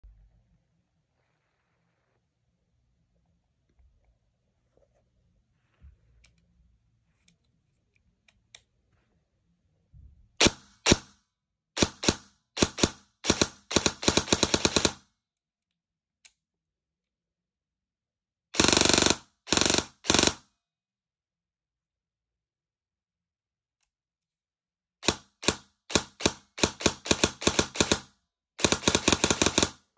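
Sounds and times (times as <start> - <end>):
airsoft gun firing: 11.8 - 15.0, 25.0 - 29.8.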